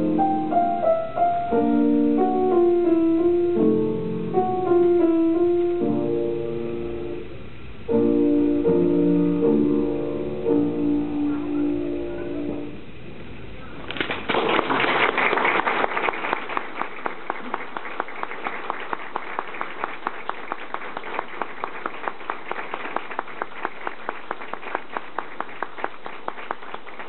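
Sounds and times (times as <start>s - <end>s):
audience applauding: 13.9s - 27.0s
rhythmic clapping: 13.9s - 27.0s.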